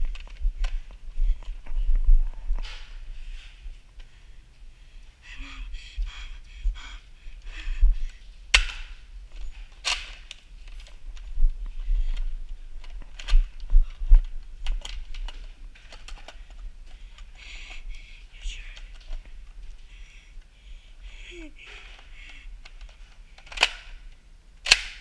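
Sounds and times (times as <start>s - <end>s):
footsteps: 0.0s - 5.2s.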